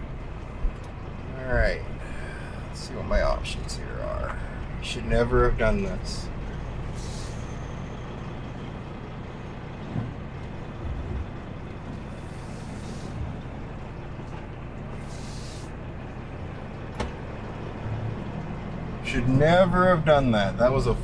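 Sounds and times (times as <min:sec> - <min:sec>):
diesel engine running: 0:00.0 - 0:21.0
air brake hiss: 0:06.9 - 0:07.7, 0:12.1 - 0:13.2, 0:15.0 - 0:15.8.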